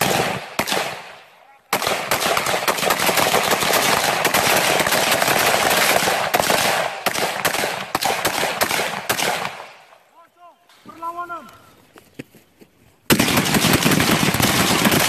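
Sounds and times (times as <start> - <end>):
assault rifles firing rapidly: 0.0 - 9.8, 13.1 - 15.0.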